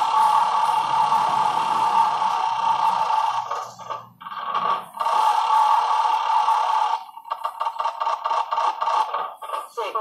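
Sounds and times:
steady electronic tone: 0.0 - 7.1.

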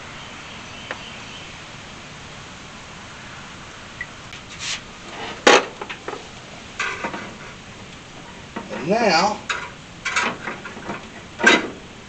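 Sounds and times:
metal part clacking and knocking: 9.5 - 11.8.

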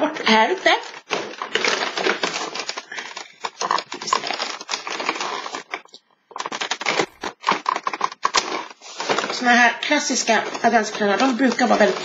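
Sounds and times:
fingers tearing at cardboard: 1.0 - 5.8, 6.4 - 9.3.

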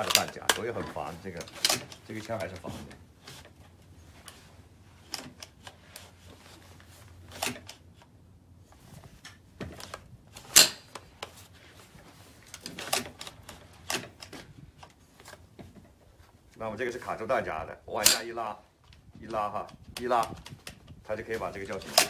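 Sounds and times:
rifle metallic clicks and clacks: 0.0 - 2.7, 18.0 - 22.0.

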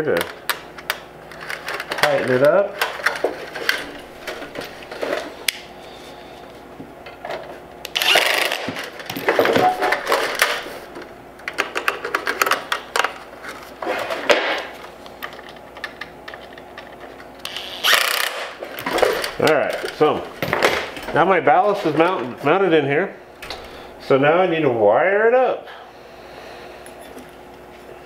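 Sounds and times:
cordless drill driving screws: 7.9 - 8.7, 17.4 - 18.5.

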